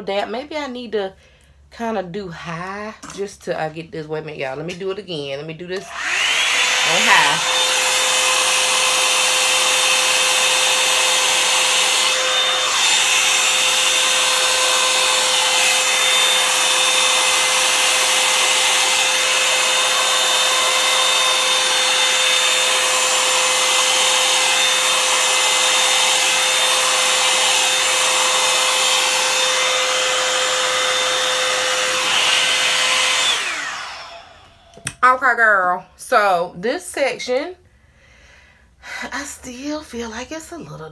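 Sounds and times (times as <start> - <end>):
hair dryer fan whirring: 4.2 - 36.4.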